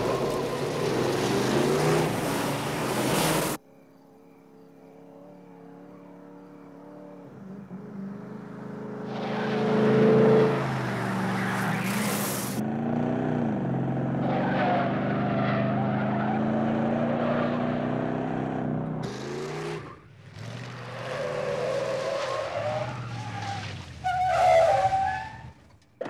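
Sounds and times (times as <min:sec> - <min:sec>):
car engines revving: 0:00.0 - 0:03.6, 0:06.1 - 0:25.0
tires squealing and skidding: 0:00.0 - 0:03.6, 0:09.0 - 0:12.6, 0:14.2 - 0:18.0, 0:19.1 - 0:25.7.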